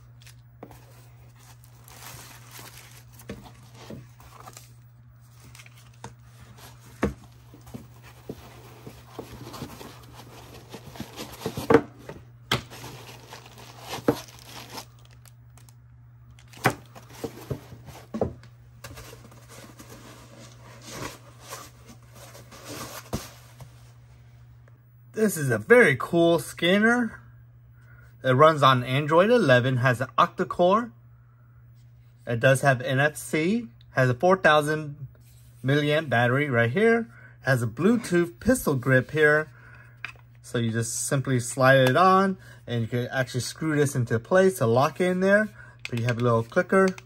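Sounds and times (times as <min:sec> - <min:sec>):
plastic bags crinkling: 0:01.3 - 0:04.8, 0:12.6 - 0:15.8.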